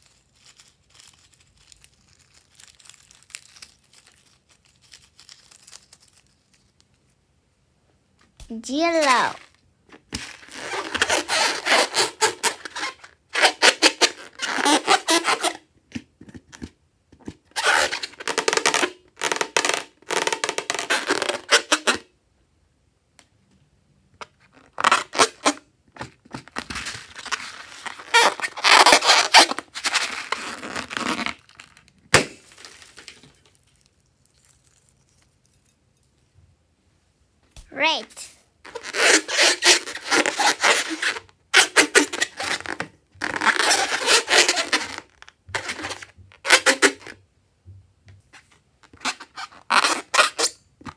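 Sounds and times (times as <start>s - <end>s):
slime squishing: 26.5s - 35.8s.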